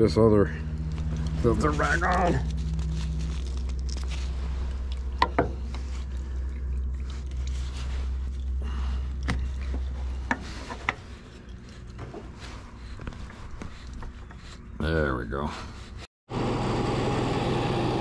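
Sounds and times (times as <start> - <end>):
low steady hum: 0.0 - 16.1
hands screwing on oil filter: 0.7 - 14.8.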